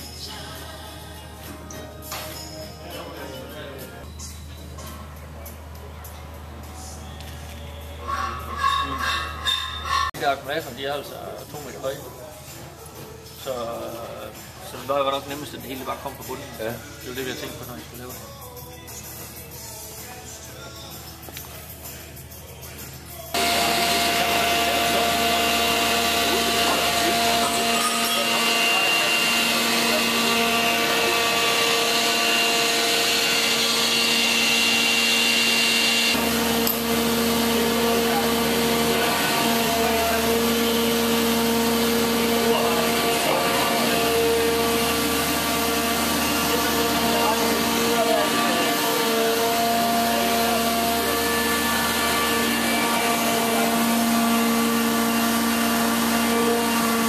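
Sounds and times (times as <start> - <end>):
machinery humming and whining: 23.4 - 57.0.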